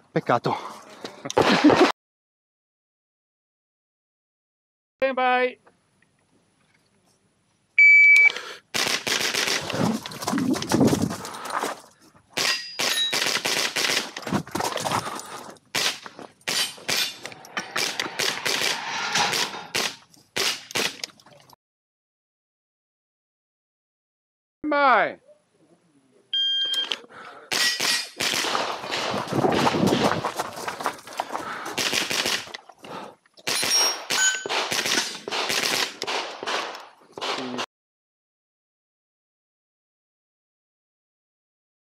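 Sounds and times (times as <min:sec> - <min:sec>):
rifle shots: 0:08.8 - 0:09.7, 0:17.8 - 0:21.0, 0:27.5 - 0:29.7, 0:31.8 - 0:32.5, 0:33.5 - 0:37.5
steel targets clanging: 0:12.4 - 0:13.2, 0:16.5 - 0:17.8, 0:33.6 - 0:35.2.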